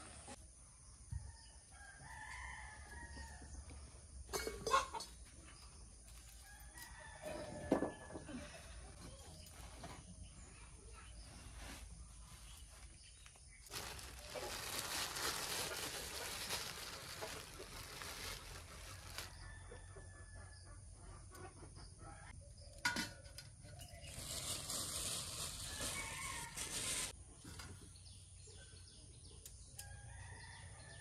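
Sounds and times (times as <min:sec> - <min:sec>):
plastic bag rustling: 0:11.2 - 0:19.4, 0:24.0 - 0:27.1.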